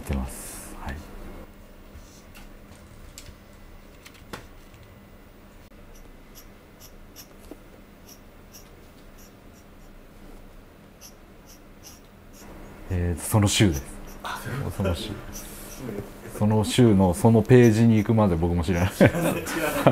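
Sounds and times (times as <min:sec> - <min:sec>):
faint hum: 0:00.0 - 0:19.9
pen nib scratching paper: 0:05.9 - 0:07.4, 0:08.0 - 0:10.0, 0:11.0 - 0:12.5, 0:15.2 - 0:15.8, 0:17.5 - 0:18.0.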